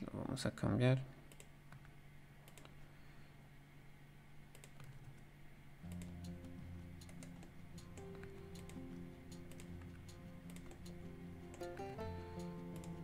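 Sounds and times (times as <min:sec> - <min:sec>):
keyboard and mouse clicks: 0:01.3 - 0:02.8, 0:04.5 - 0:13.0
quiet background music: 0:05.7 - 0:13.0.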